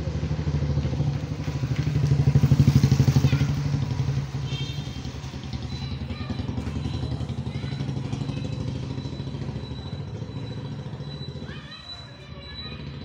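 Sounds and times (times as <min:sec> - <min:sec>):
small engine idling: 0:00.0 - 0:13.0
faint voices: 0:05.7 - 0:09.2, 0:10.0 - 0:13.0.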